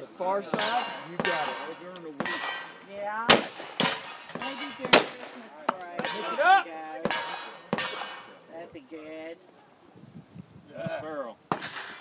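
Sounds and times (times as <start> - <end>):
metallic clangs of steel targets: 0.5 - 5.4, 6.0 - 8.4
shotgun shots: 0.5 - 6.4, 7.0 - 8.3, 11.5 - 12.0.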